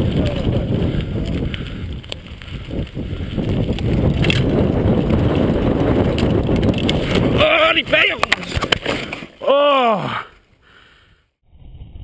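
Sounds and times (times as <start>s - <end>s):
wind buffeting microphone: 0.0s - 8.8s
bike clicks and rattles: 0.0s - 9.4s
tyres rumbling over dirt: 0.0s - 10.2s.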